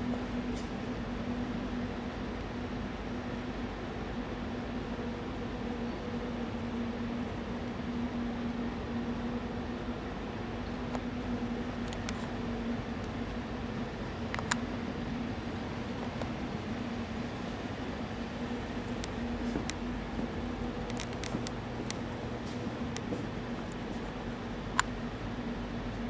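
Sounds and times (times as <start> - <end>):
ventilation hum and hiss: 0.0 - 26.0.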